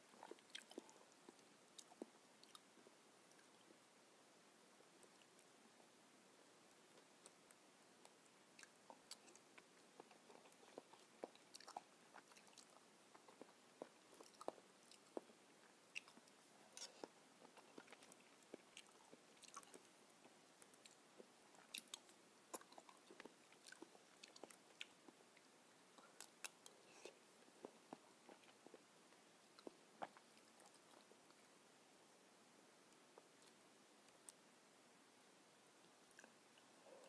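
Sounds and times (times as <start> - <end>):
chewing and mouth clicks: 0.1 - 2.7, 7.0 - 28.8, 29.5 - 31.5.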